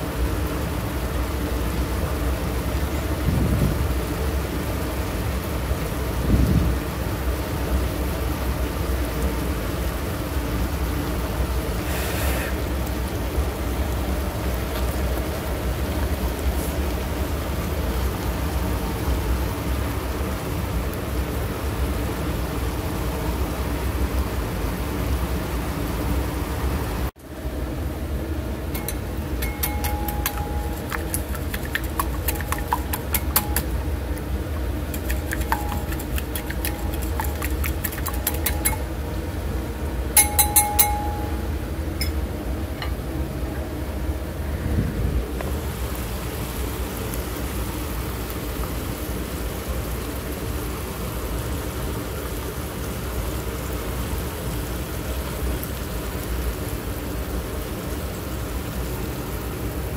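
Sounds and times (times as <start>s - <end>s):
whisk beating eggs in bowl: 28.8s - 33.8s, 34.8s - 38.9s, 40.2s - 41.3s.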